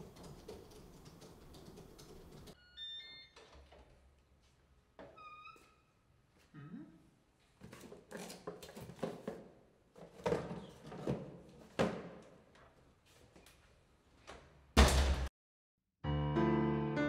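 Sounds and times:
door shutting with a thud: 14.8s - 15.3s.

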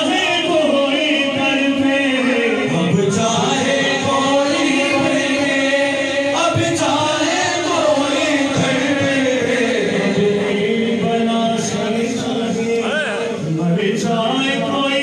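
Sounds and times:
men singing in unison: 0.0s - 15.0s.

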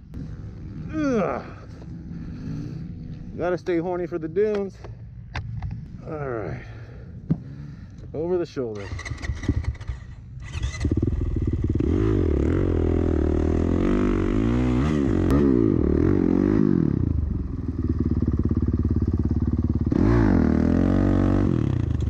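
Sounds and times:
dirt bike engine revving: 8.8s - 22.0s.

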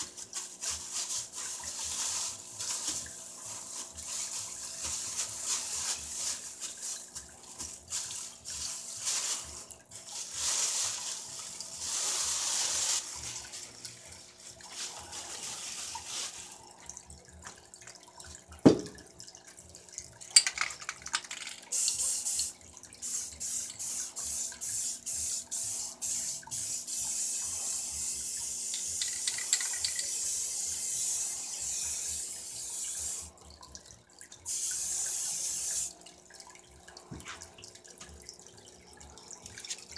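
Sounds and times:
spray-paint cans hissing: 0.0s - 16.6s, 20.4s - 33.4s, 34.5s - 36.0s.

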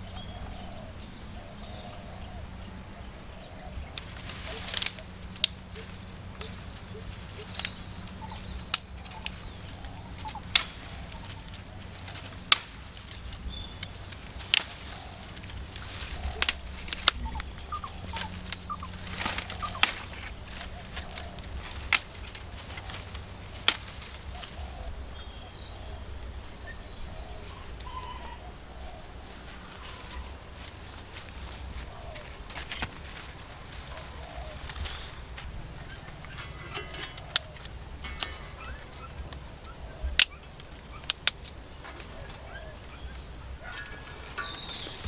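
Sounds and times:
birds chirping: 0.0s - 45.0s
twigs snapping: 3.8s - 26.4s, 29.3s - 45.0s.

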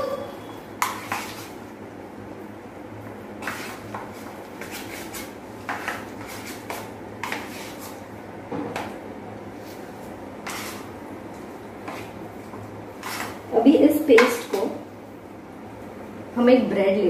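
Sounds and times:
hands mixing wet paste: 0.8s - 1.6s, 3.1s - 8.1s, 9.6s - 13.6s.

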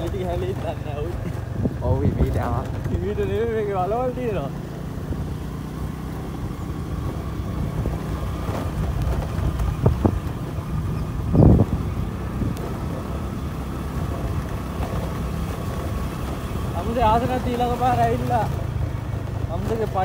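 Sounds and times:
motorcycle engine running: 0.0s - 20.0s
wind noise on microphone: 1.3s - 3.4s, 6.3s - 14.8s.

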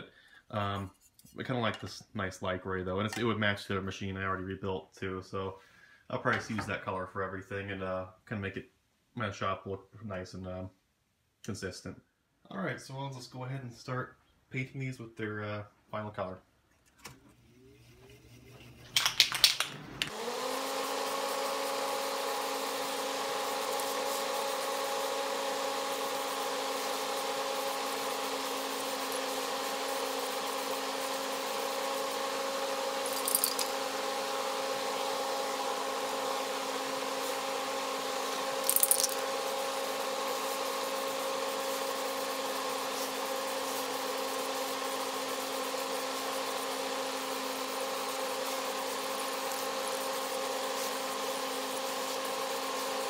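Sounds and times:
small electric motor humming: 20.1s - 53.0s.

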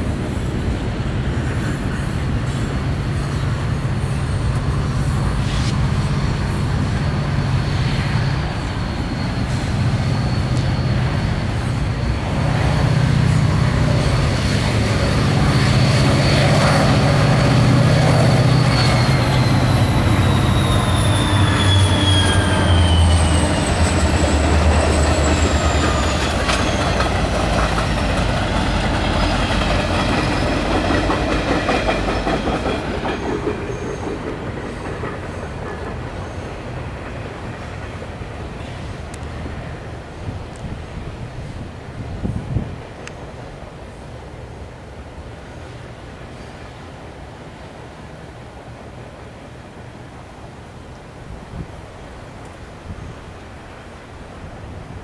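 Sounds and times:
high thin whine: 0.0s - 32.2s
diesel locomotive engine drone: 0.0s - 55.0s
wheels clicking over rail joints: 23.8s - 40.8s.

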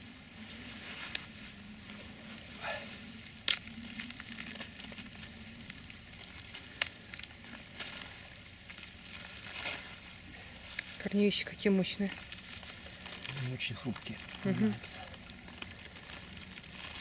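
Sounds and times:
soil rustling and crumbling: 0.0s - 17.0s
steady high hiss: 0.0s - 17.0s.

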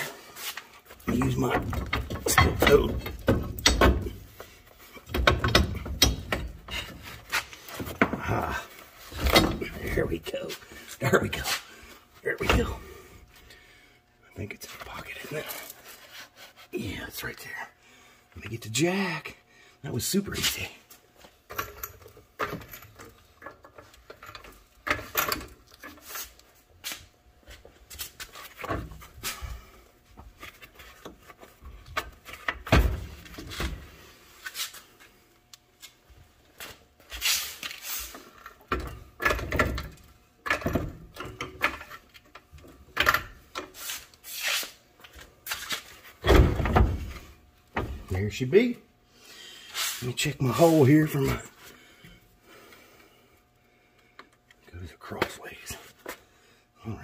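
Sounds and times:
metal clunks and knocks: 1.1s - 4.3s, 5.0s - 7.1s, 46.2s - 48.1s.

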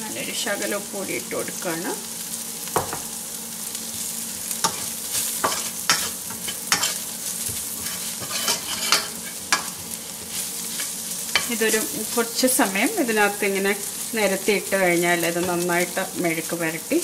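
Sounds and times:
okra sizzling in a pan: 0.0s - 17.0s
metal spoon scraping a pan: 4.6s - 12.2s.

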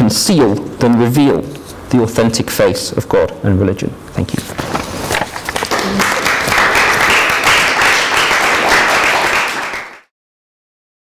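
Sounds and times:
audience applauding: 5.3s - 10.1s.

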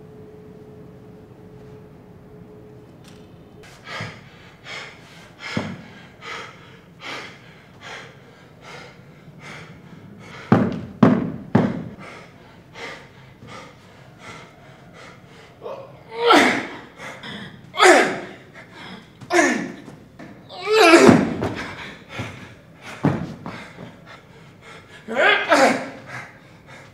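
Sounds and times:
man breathing hard: 3.6s - 10.9s, 11.6s - 20.0s, 21.1s - 26.9s
heavy thuds or grunts: 5.5s - 5.9s, 10.4s - 12.0s, 19.2s - 24.1s.

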